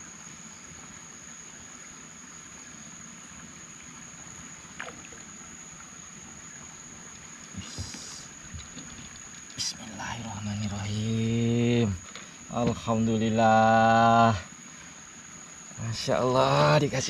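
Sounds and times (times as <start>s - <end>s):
water lapping around boat: 4.4s - 15.8s
splashy rustle: 4.7s - 5.3s, 7.7s - 9.8s.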